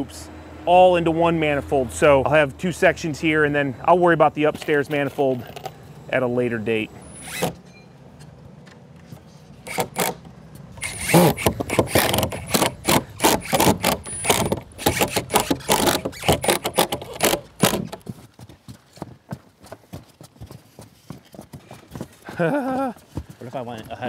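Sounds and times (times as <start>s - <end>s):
knocks and clicks: 9.7s - 18.1s.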